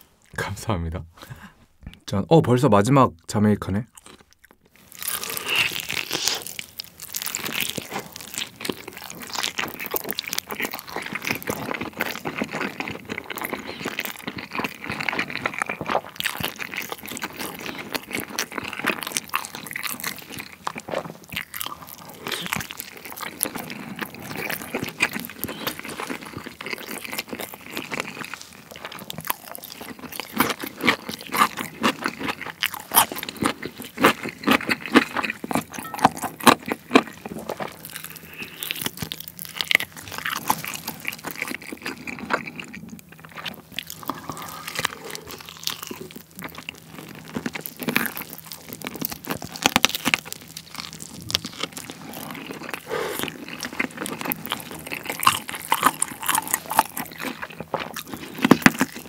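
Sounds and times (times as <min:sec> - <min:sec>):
biting and chewing chicken: 0:03.9 - 0:59.0.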